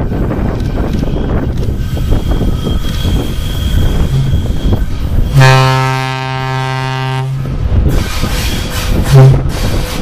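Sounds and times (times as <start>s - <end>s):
train rumble: 0.0s - 10.0s
wind: 0.0s - 10.0s
locomotive air horn: 3.5s - 7.6s, 9.0s - 9.6s.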